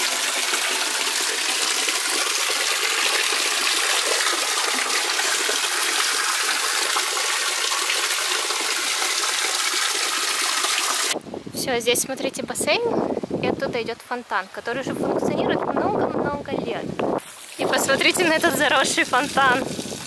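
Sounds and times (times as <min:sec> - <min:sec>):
fountain splashing into pool: 0:00.0 - 0:11.2, 0:17.3 - 0:20.0.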